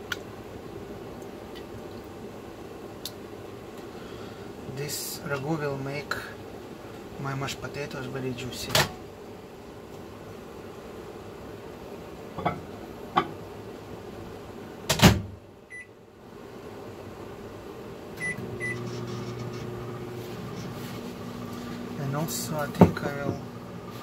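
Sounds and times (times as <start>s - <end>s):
kitchen appliance humming: 17.5s - 24.0s.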